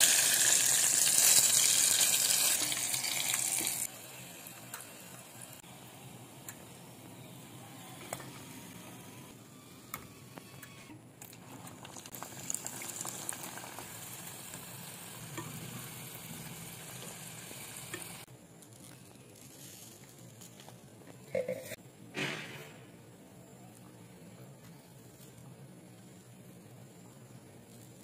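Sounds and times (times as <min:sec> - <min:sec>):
pastry deep-frying in oil: 0:00.0 - 0:06.9, 0:11.3 - 0:18.4.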